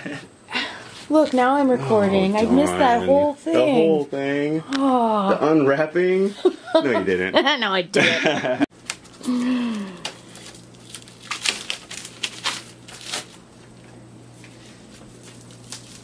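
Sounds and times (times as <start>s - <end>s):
steady low hum: 0.0s - 16.0s
plastic wrap crinkling: 8.8s - 13.5s, 14.5s - 16.0s.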